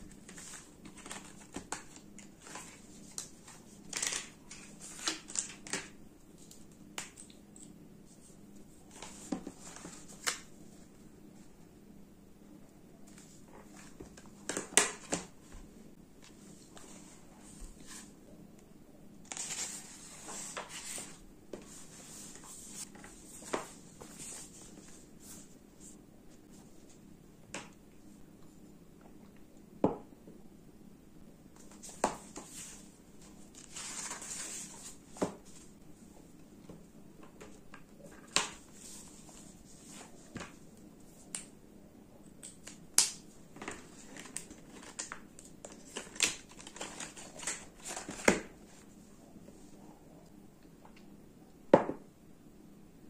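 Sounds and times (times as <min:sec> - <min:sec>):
book pages turning: 0:00.0 - 0:07.1, 0:19.2 - 0:25.6, 0:31.6 - 0:35.7, 0:43.6 - 0:48.9.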